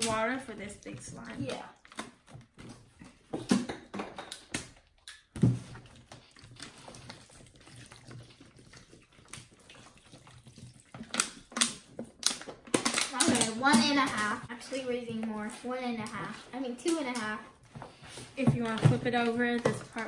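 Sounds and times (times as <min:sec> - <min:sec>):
water pouring onto paper: 0:05.5 - 0:14.6.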